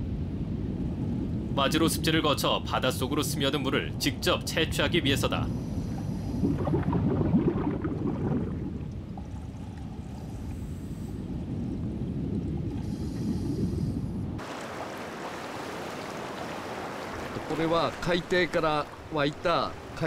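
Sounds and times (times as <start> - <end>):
churning water rumble: 0.0 - 20.0
hiss of water: 12.7 - 18.9.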